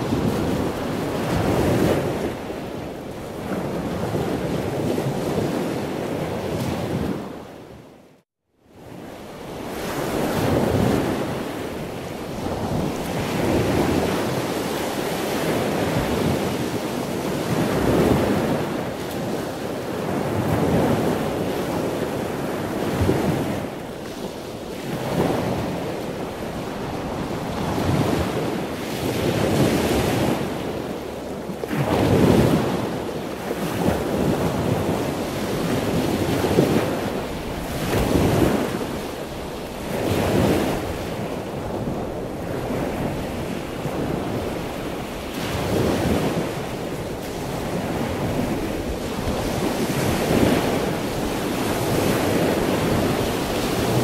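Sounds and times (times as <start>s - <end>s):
waves washing in: 0.0s - 7.8s, 8.7s - 54.0s.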